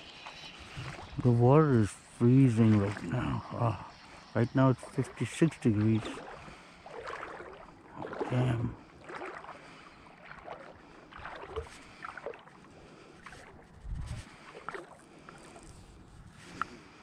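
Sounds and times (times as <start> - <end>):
low voiced hum: 0.0 - 12.1
water lapping: 0.0 - 17.0.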